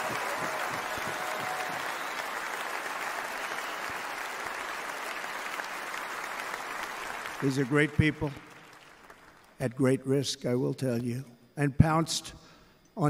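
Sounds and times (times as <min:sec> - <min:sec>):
large crowd applauding: 0:00.0 - 0:09.6.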